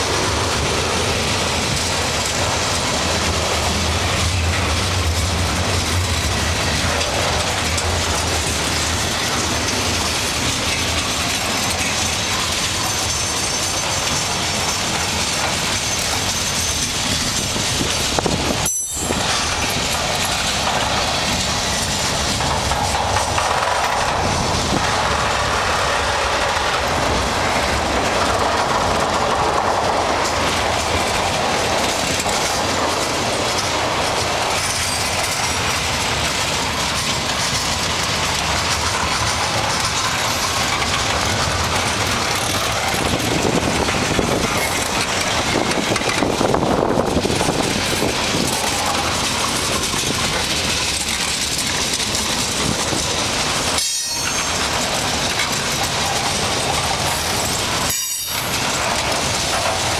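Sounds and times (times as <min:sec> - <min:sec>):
freight train rolling on rails: 0:00.0 - 0:59.9.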